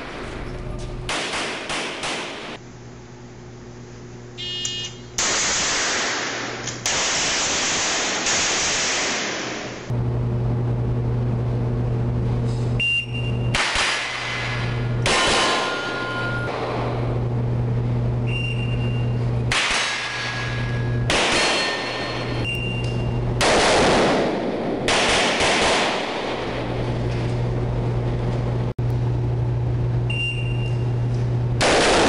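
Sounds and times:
camera electrical hum: 0.0 - 32.0
rapid rifle gunfire: 1.1 - 2.6, 5.2 - 9.9, 13.6 - 15.8, 19.5 - 20.3, 21.1 - 22.0, 23.4 - 26.8, 31.6 - 32.0
shot timer beep: 4.4 - 5.0, 12.8 - 13.5, 18.2 - 19.2, 22.4 - 23.2, 30.1 - 30.9.

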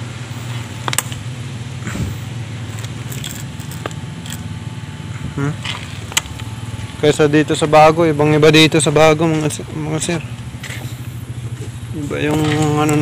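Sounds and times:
low mechanical hum: 0.0 - 13.0
clutch cable clicking and rattling: 2.6 - 4.5, 5.6 - 7.1, 9.2 - 13.0.

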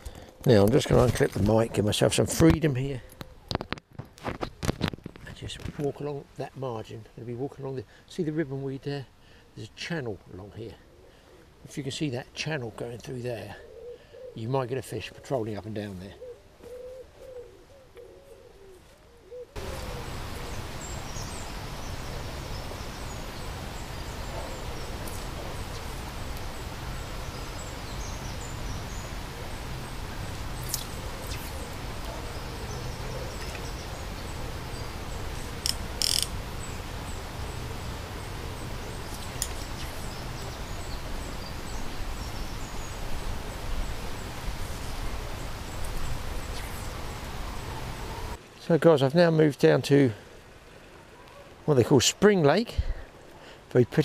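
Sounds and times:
small birds chirping: 10.5 - 48.5
pigeon cooing: 13.5 - 14.5, 16.1 - 20.5
sharp clicks: 35.6 - 36.4.

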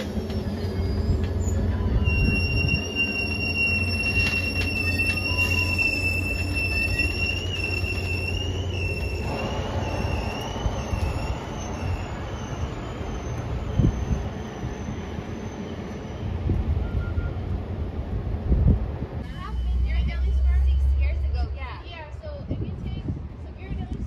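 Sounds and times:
high wheel squeal: 0.0 - 17.5
train cars rumbling: 0.0 - 24.0.

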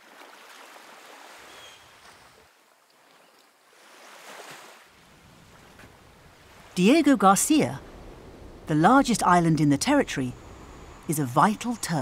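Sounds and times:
ocean surf washing in: 5.0 - 12.0.

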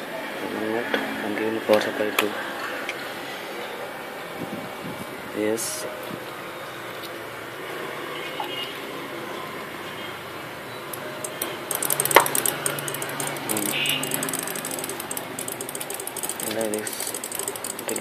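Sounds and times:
rapid dry clicks: 11.2 - 18.0.

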